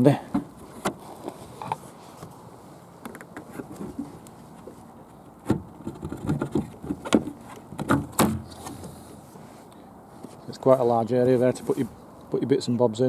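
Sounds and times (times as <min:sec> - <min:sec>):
plastic hatch cover clicks and knocks: 0:05.5 - 0:08.5.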